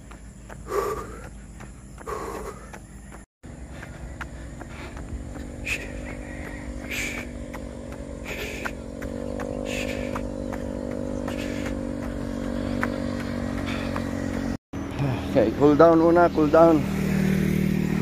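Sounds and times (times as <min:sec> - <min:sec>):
jogger's footfalls: 0:00.0 - 0:14.6
vehicle engine running: 0:00.0 - 0:18.0
person breathing: 0:00.1 - 0:07.4, 0:08.2 - 0:09.0, 0:09.6 - 0:14.2.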